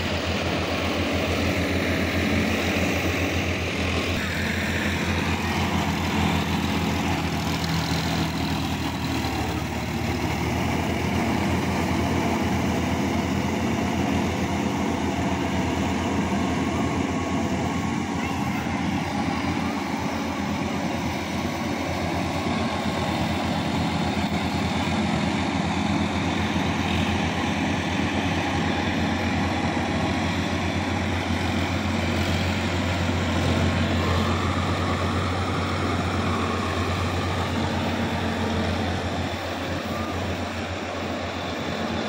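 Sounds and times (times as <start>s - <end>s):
tractor diesel engine running: 0.0s - 42.0s.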